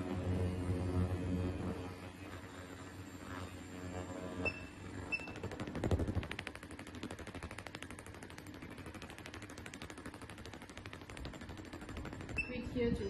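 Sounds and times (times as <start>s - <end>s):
rapid rattle of clicks: 5.4s - 13.0s.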